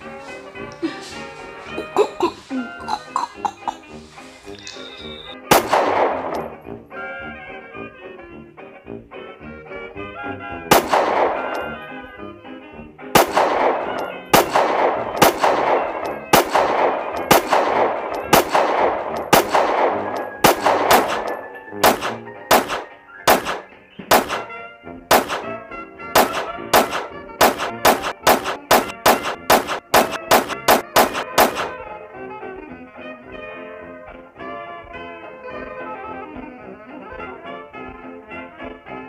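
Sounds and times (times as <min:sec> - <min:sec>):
background music: 0:00.0 - 0:39.0
pistol shots with echo: 0:05.4 - 0:06.8, 0:10.7 - 0:12.0, 0:13.2 - 0:32.0.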